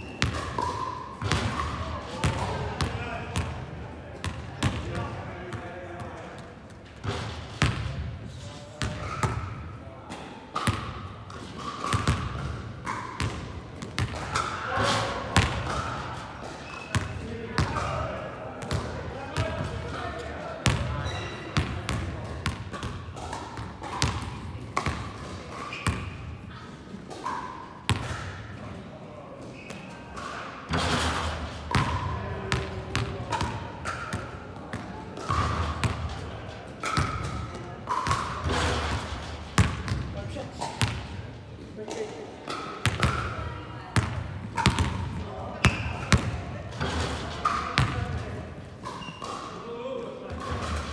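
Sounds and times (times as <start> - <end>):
basketballs bouncing in a hall: 0.0 - 28.8, 29.5 - 50.9.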